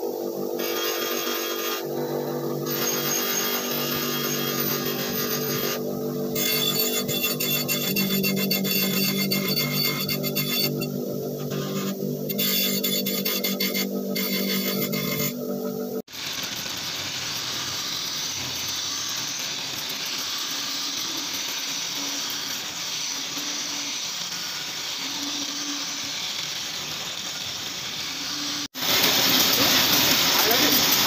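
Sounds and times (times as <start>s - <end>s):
chisel cutting wood on lathe: 0.6s - 15.8s.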